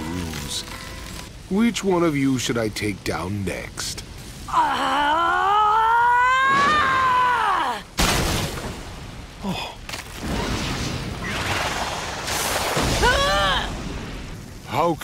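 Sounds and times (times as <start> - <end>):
woman screaming in pain: 4.5 - 7.9, 13.0 - 13.7
rushing crackling battle effects: 9.9 - 15.0.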